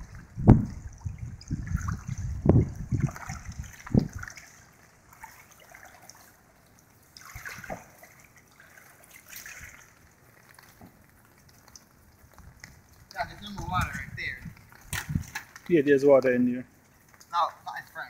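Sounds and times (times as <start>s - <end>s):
water sloshing with wading steps: 0.0s - 18.0s.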